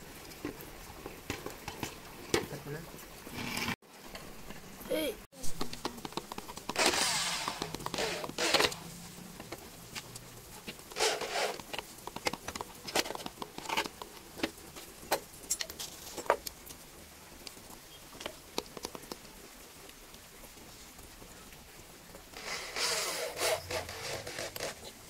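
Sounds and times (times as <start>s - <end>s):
scraping on wooden board: 6.0s - 8.9s, 10.9s - 14.0s, 22.4s - 25.0s
power drill driving a screw: 6.8s - 8.8s, 11.0s - 11.6s, 22.4s - 24.8s.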